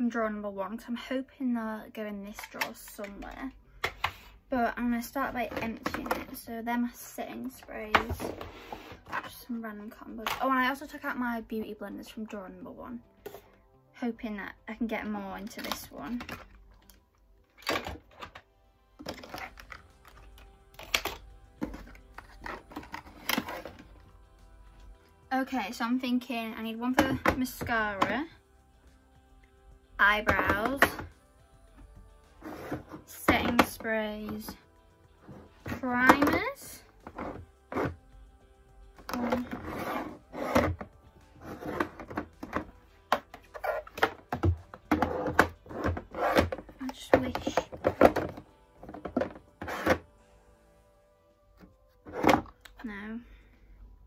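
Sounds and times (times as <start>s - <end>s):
soft background music: 0.0s - 54.0s
plastic items clicking and knocking: 2.3s - 4.2s, 5.3s - 6.4s, 15.4s - 24.0s, 35.6s - 38.0s, 41.5s - 50.1s.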